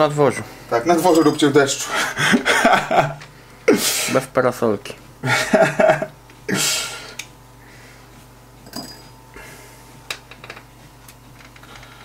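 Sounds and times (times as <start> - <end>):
man speaking: 0.0 - 1.9.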